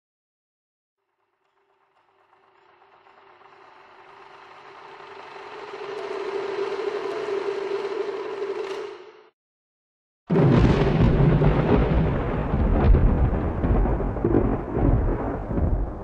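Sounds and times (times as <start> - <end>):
steady hum: 2.0 - 9.3
rushing riser noise: 2.8 - 9.3.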